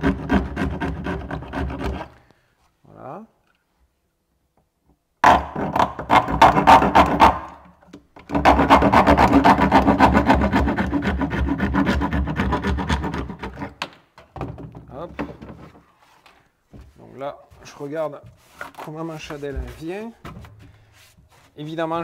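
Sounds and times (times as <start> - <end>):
serrated knife sawing plastic: 0.0 - 2.2, 8.3 - 13.8.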